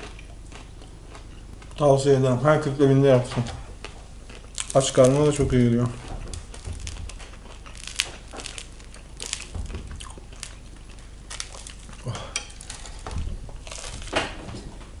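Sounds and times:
bread crust crackling: 0:02.9 - 0:15.0
bread being bitten: 0:03.8 - 0:14.4.

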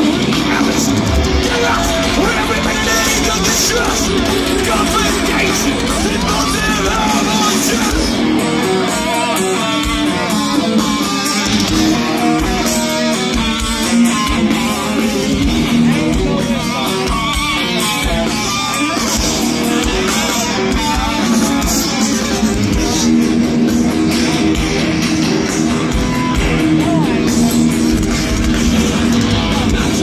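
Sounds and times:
distorted electric guitars: 0:00.0 - 0:30.0.

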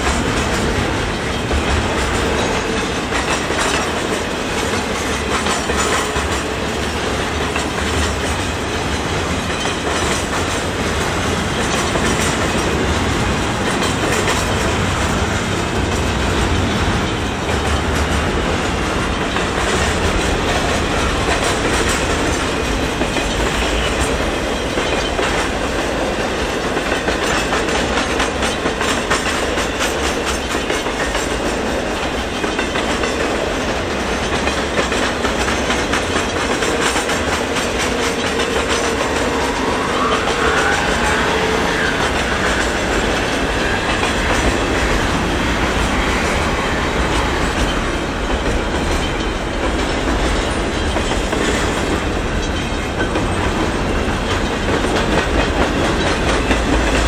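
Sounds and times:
freight train wheels clacking: 0:00.0 - 0:57.0
faint wavering squeal: 0:39.1 - 0:42.8.

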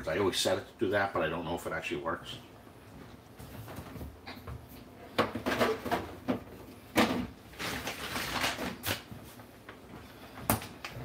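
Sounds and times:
household knocks and clatters: 0:03.4 - 0:07.8.

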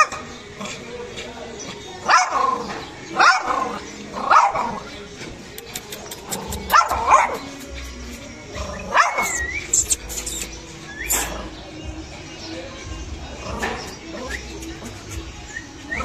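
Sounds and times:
small dog barking: 0:02.0 - 0:02.6, 0:03.2 - 0:04.8, 0:06.4 - 0:07.5, 0:08.8 - 0:09.5.

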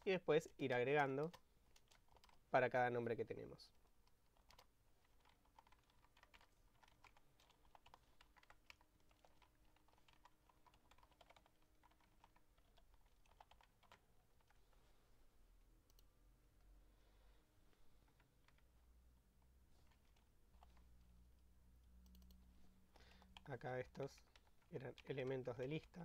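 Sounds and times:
typing on keyboard: 0:00.5 - 0:02.4, 0:04.0 - 0:14.6, 0:23.0 - 0:26.0.

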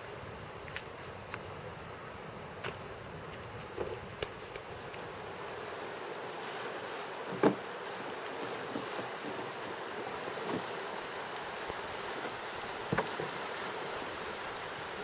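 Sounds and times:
fast-flowing river rushing: 0:04.0 - 0:15.0.

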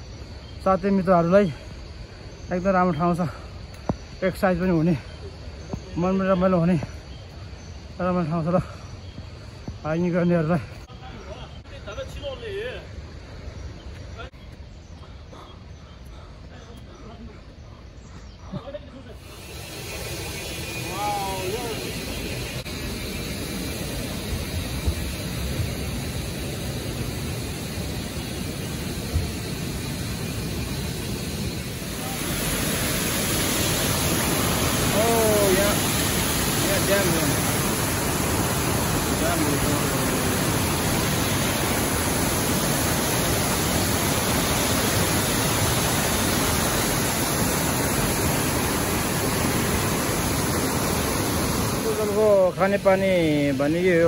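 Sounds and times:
rushing water at a dam: 0:19.3 - 0:54.0.

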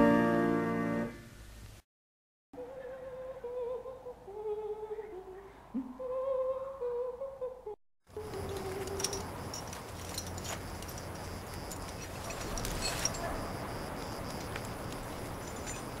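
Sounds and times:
person humming a slow tune: 0:02.6 - 0:09.3.

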